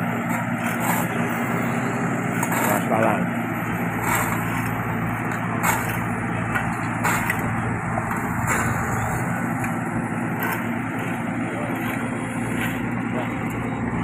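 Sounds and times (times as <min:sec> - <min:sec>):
diesel engine running: 0:00.0 - 0:14.0
dump truck working: 0:00.0 - 0:14.0.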